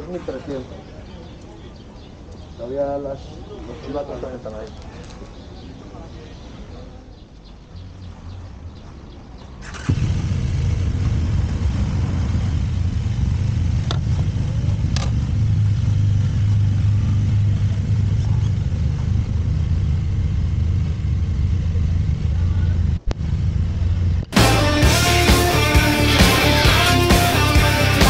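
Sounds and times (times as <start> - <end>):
motorcycle engine starting and idling: 9.4 - 28.0.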